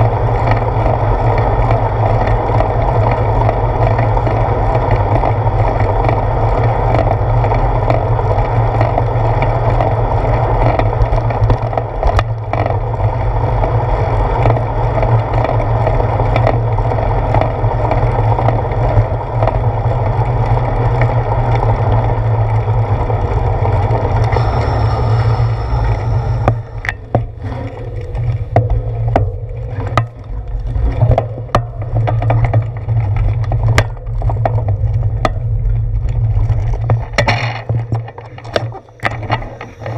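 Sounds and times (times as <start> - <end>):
bicycle clicks and knocks: 0.0 - 39.9
bicycle road rumble: 0.0 - 39.9
wind buffeting: 21.2 - 34.8.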